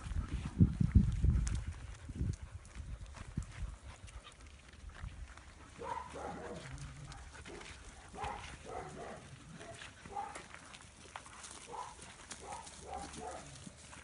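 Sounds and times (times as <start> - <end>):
dogs yipping and barking: 5.6 - 10.6, 11.5 - 13.8.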